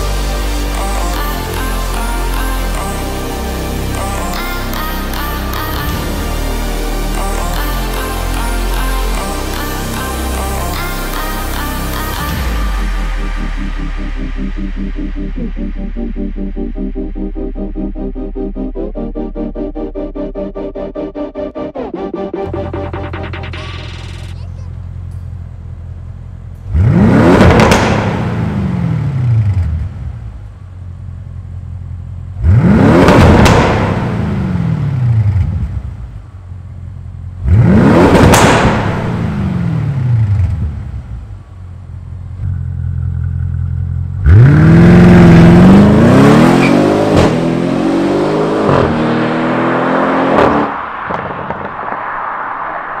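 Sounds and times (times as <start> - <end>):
car engine revving: 0.0 - 53.0
car engine idling: 22.4 - 49.0.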